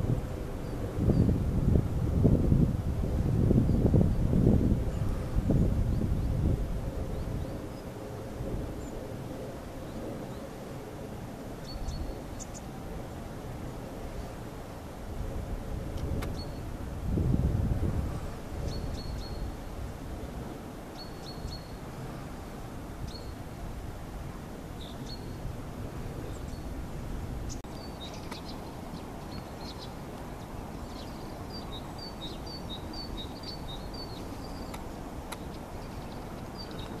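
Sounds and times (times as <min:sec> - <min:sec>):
small birds chirping: 0:11.6 - 0:12.8, 0:18.6 - 0:19.6, 0:20.9 - 0:22.1, 0:23.0 - 0:23.4, 0:27.4 - 0:37.0.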